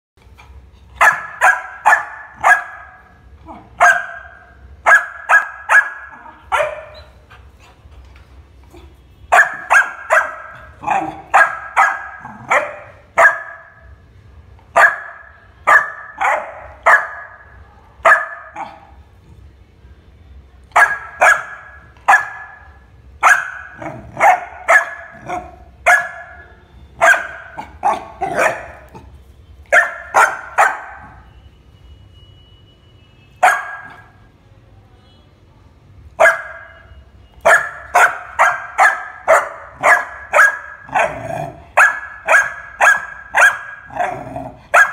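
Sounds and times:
puppy barking: 1.0 - 7.3, 8.7 - 14.0, 14.7 - 19.0, 20.7 - 29.1, 29.7 - 31.3, 33.4 - 34.2, 36.2 - 44.9.

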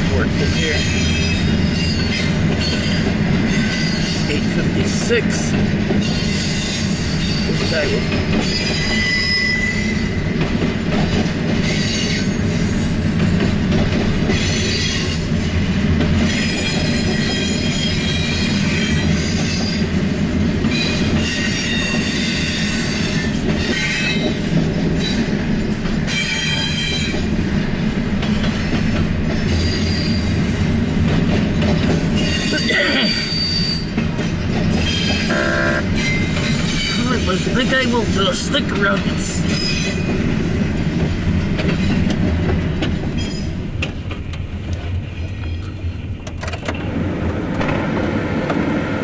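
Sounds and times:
train wheels rumbling on rails: 0.0 - 49.0
high-pitched wheel squeal: 8.4 - 10.3, 34.8 - 37.0.

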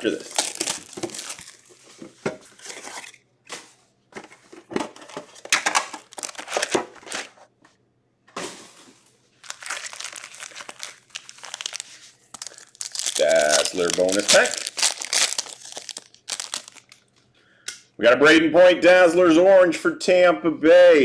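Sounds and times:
plastic and foil packs crinkling: 0.0 - 3.2, 4.9 - 7.4, 8.7 - 17.2.

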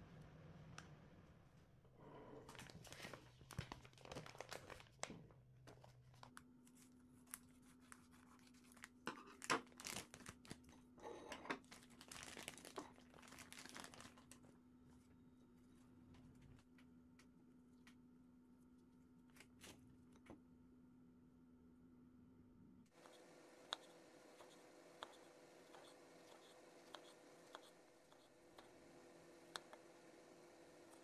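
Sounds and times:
faint steady hum: 0.0 - 31.0
plastic bag crinkling: 2.5 - 5.1, 7.2 - 10.7, 11.6 - 14.4.

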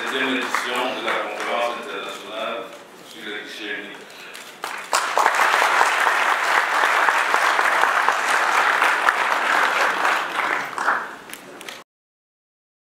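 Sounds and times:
audience applause: 0.0 - 1.8, 4.6 - 11.4.

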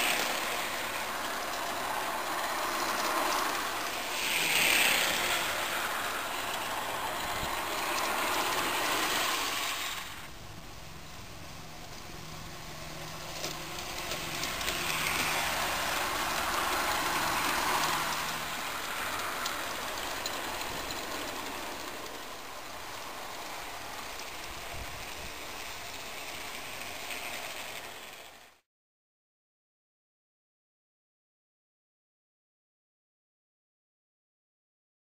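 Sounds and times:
model train motor hum: 0.0 - 28.6
wheels rattling over track: 0.0 - 28.6.

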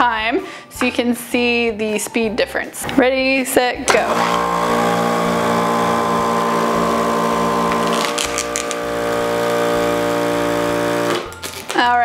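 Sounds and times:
electric balloon pump humming: 3.9 - 11.7.

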